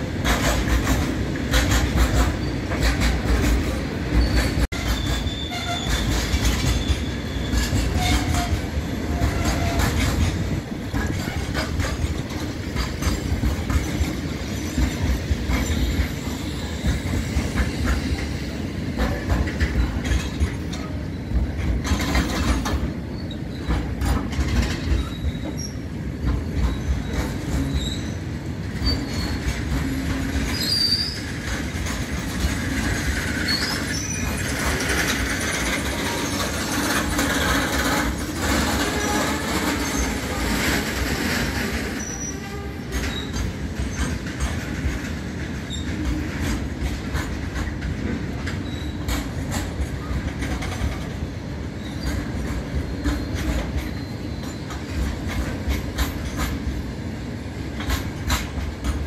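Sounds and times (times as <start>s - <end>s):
train wheels clattering over joints: 0.0s - 59.0s
wheels squealing: 1.6s - 12.1s, 32.2s - 44.1s.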